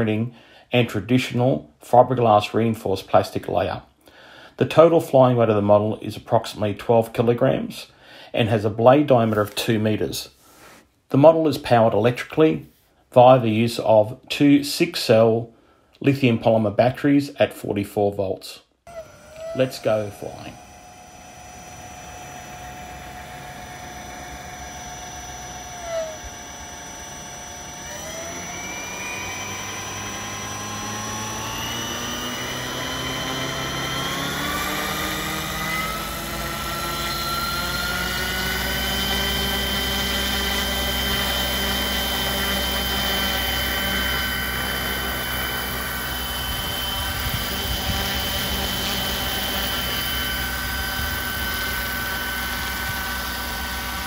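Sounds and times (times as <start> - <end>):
rc helicopter motor whine: 18.9 - 54.0
rotor rumble: 18.9 - 54.0.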